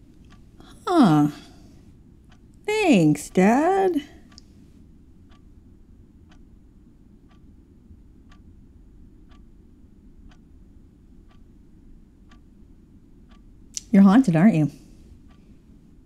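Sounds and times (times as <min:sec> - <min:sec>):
clock ticking: 0:00.0 - 0:01.5, 0:02.3 - 0:04.5, 0:05.3 - 0:05.5, 0:06.3 - 0:06.6, 0:07.3 - 0:07.5, 0:08.2 - 0:08.5, 0:09.2 - 0:09.6, 0:10.2 - 0:10.5, 0:11.2 - 0:12.5, 0:13.2 - 0:15.5
low room hum: 0:00.0 - 0:16.0.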